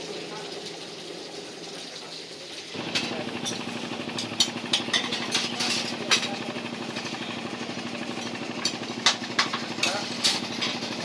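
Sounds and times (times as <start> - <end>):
boat engine knocking and humming: 2.8 - 11.0.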